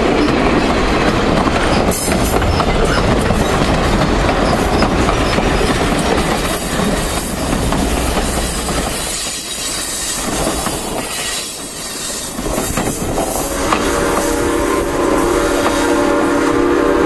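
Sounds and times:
train wheels clicking over rail joints: 0.0 - 14.9
train wheel squeal: 1.6 - 16.5
locomotive whistle: 13.2 - 17.0.

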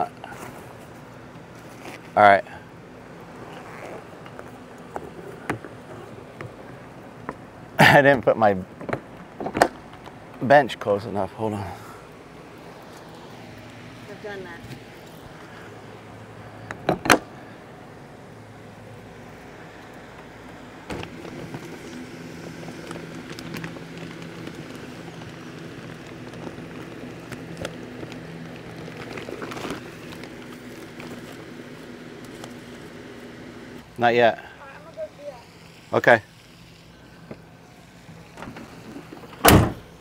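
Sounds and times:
low mechanical hum: 0.0 - 40.0
faint clicks and rustles: 19.7 - 33.8.

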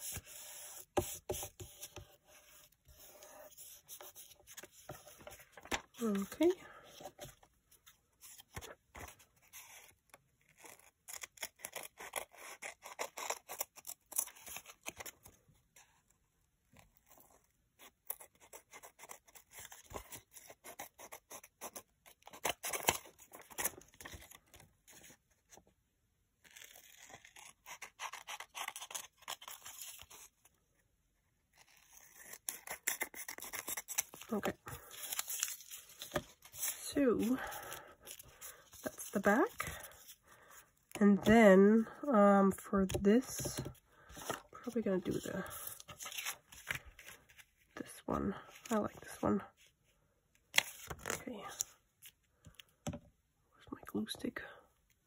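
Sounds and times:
scissors cutting paper: 26.5 - 30.0.

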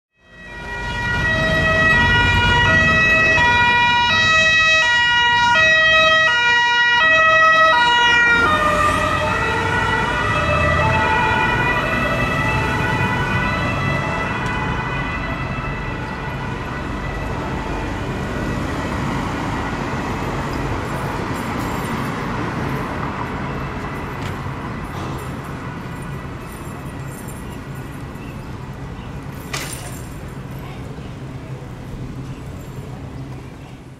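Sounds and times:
city traffic noise: 0.1 - 33.9
two-tone police siren: 0.2 - 20.2.

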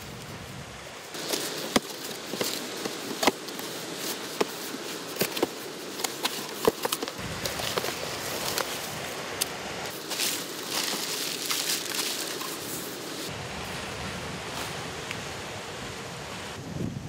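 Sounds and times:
wind rumble on microphone: 0.0 - 1.2, 7.1 - 10.9, 12.7 - 17.0
paper and bubble-wrap rustling: 1.1 - 13.3.

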